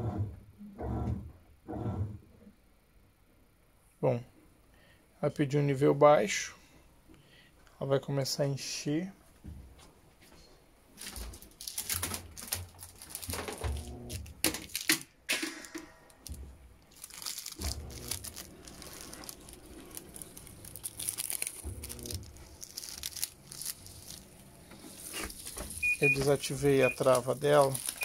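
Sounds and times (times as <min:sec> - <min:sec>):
crackling: 0:11.0 - 0:15.2, 0:16.0 - 0:28.0.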